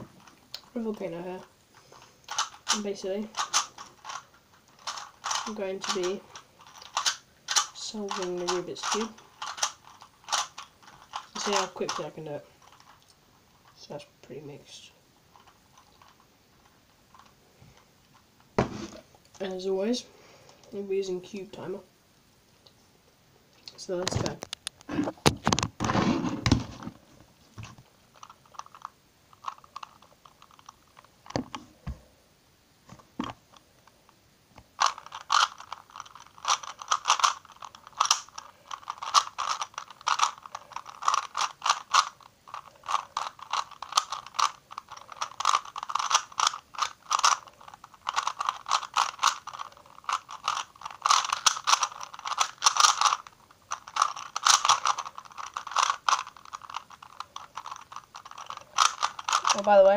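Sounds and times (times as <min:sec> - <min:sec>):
puzzle cube clicking and scraping: 0:00.0 - 0:13.8, 0:27.6 - 0:31.8, 0:34.8 - 0:59.9.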